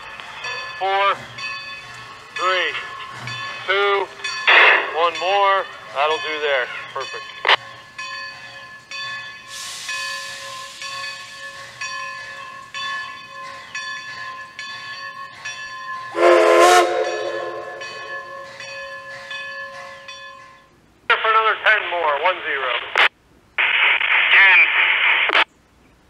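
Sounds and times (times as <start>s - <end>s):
locomotive bell ringing: 0.0s - 22.3s
steam hissing: 9.1s - 13.1s
steam whistle blast: 16.1s - 18.5s.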